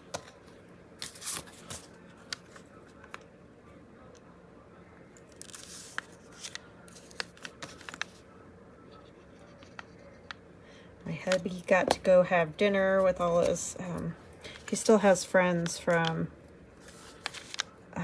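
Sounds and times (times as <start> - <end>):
paper pages rustling: 5.3 - 8.2, 16.8 - 17.8.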